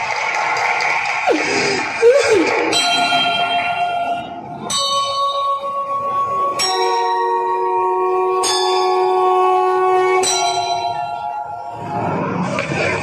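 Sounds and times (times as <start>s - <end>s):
bell chimes ringing: 2.7s - 9.2s, 10.1s - 11.7s.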